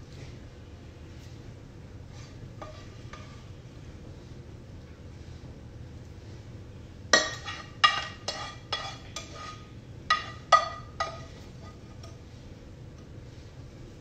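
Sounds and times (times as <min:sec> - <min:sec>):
utensil knocking on frying pan: 0:07.2 - 0:09.4, 0:10.1 - 0:11.3.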